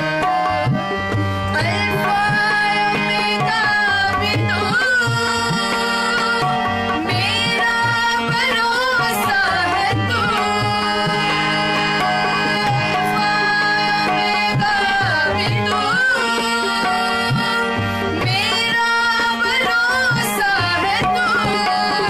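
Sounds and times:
harmonium drone: 0.0s - 22.0s
tabla rhythm: 0.0s - 22.0s
woman singing: 1.5s - 22.0s.

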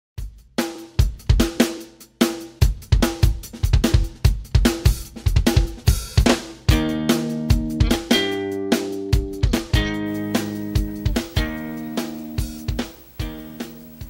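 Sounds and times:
drum kit beat: 0.2s - 14.0s
pitched tone: 9.8s - 14.0s.

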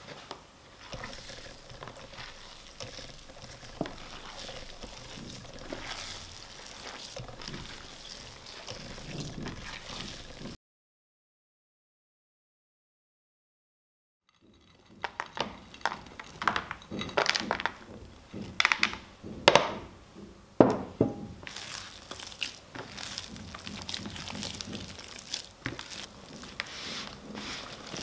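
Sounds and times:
dough squishing in plastic tub: 0.0s - 10.6s, 21.4s - 28.0s.

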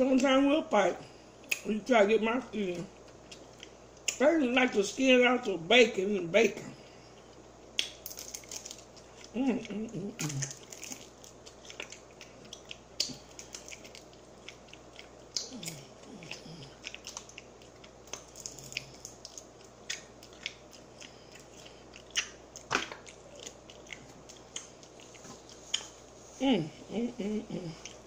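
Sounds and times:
crunchy chewing of fried chicken: 6.8s - 26.4s.

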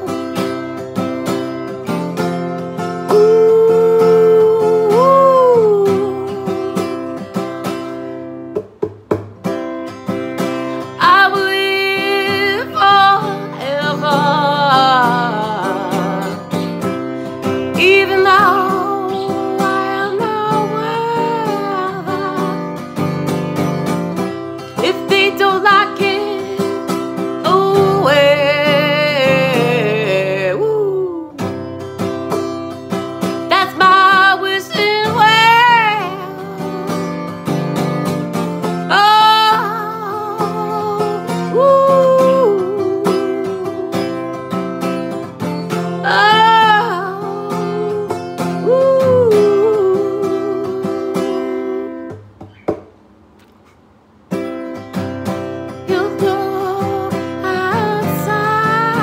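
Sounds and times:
woman singing with vibrato: 0.0s - 0.8s, 2.8s - 7.8s, 10.6s - 22.9s, 24.2s - 31.6s, 33.2s - 37.5s, 38.6s - 44.7s, 45.7s - 52.2s, 55.8s - 59.0s
acoustic guitar: 0.0s - 59.0s.

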